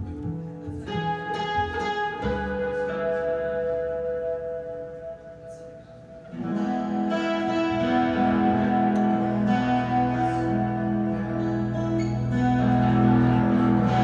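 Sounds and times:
acoustic guitar chords: 0:00.0 - 0:14.0
double bass: 0:06.6 - 0:14.0.

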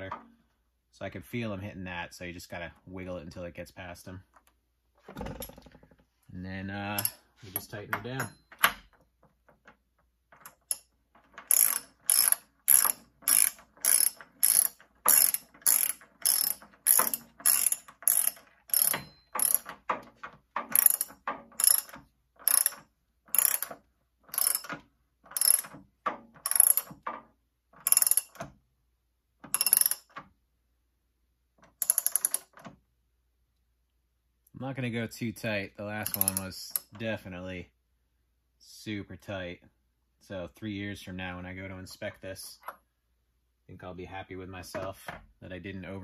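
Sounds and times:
ratchet wrench clicking: 0:10.4 - 0:19.8, 0:20.7 - 0:25.8, 0:26.4 - 0:26.9, 0:27.8 - 0:28.4, 0:29.5 - 0:30.1, 0:31.8 - 0:32.5, 0:36.0 - 0:36.9.

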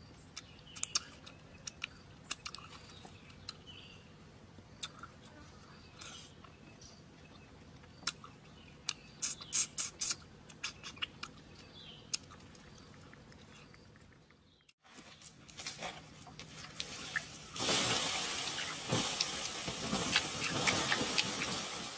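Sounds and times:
water sizzling on hot stones: 0:16.7 - 0:21.9.

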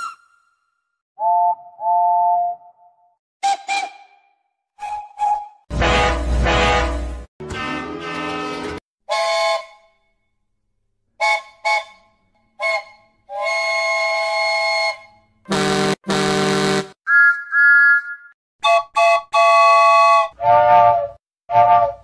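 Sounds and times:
train whistle blasts: 0:05.7 - 0:08.3, 0:09.1 - 0:09.8, 0:12.6 - 0:16.9
deep train horn blasts: 0:05.7 - 0:09.2, 0:15.5 - 0:17.0.

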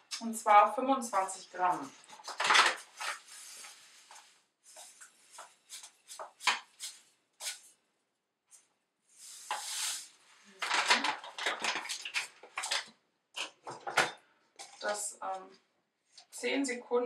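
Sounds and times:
paper bag crinkling: 0:02.0 - 0:07.6, 0:09.5 - 0:12.9.

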